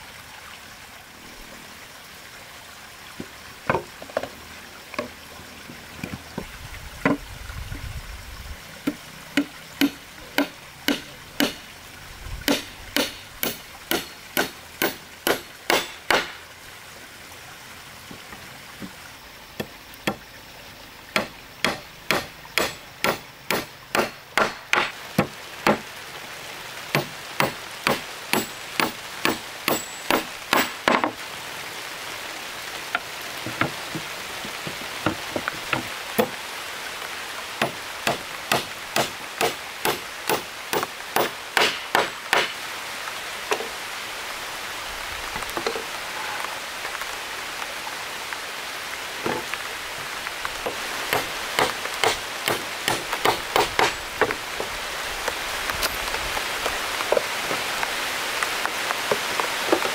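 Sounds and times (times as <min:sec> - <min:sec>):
steady hiss: 0:00.0 - 0:59.9
hammer driving nails into wood: 0:09.8 - 0:11.6, 0:12.5 - 0:16.4, 0:21.2 - 0:24.9, 0:37.6 - 0:42.5.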